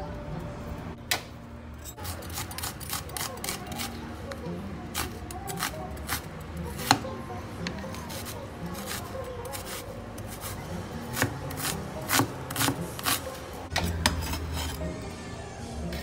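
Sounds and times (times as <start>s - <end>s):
knife chopping on wooden board: 5.0s - 7.0s, 8.1s - 14.8s.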